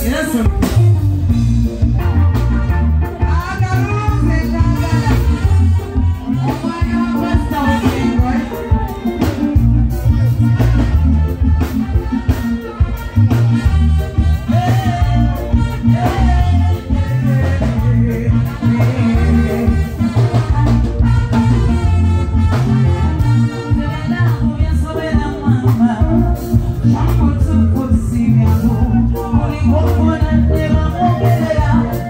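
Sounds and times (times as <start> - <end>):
woman singing: 0.0 - 0.9, 3.3 - 9.4, 23.4 - 32.0
bass guitar: 0.0 - 32.0
drum kit beat: 0.0 - 32.0
keyboards: 0.0 - 32.0.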